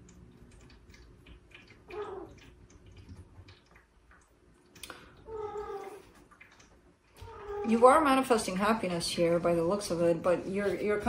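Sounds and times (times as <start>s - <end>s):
cat meowing: 1.9s - 2.3s, 5.3s - 6.1s, 7.2s - 7.7s.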